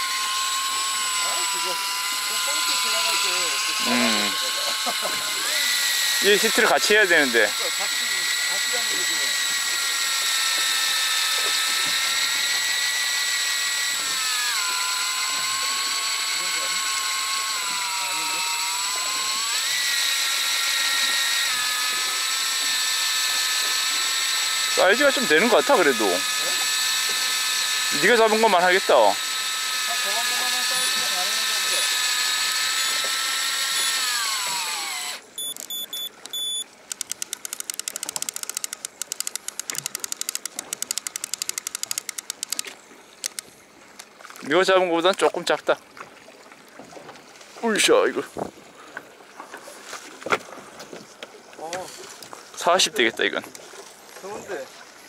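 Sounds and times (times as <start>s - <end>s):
ratchet-like clicks: 0.0s - 44.1s
fishing reel motor whining: 0.0s - 45.6s
short high beeps: 35.4s - 42.0s.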